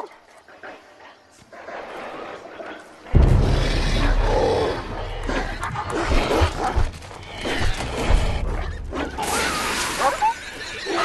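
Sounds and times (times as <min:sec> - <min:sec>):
dogs snarling and growling: 0:00.0 - 0:11.0
tense film music: 0:03.1 - 0:11.0.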